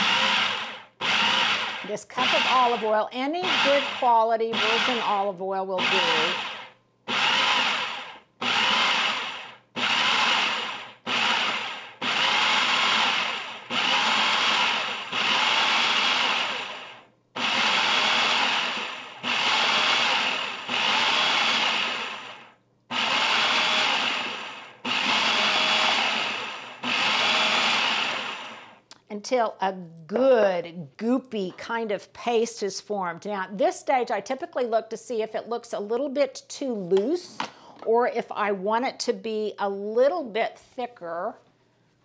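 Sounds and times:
food processor pulsing: 0.0 - 28.8.

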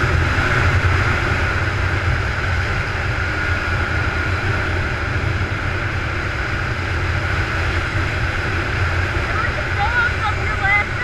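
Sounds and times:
two-stroke engine running: 0.0 - 11.0
wind noise: 0.0 - 11.0.

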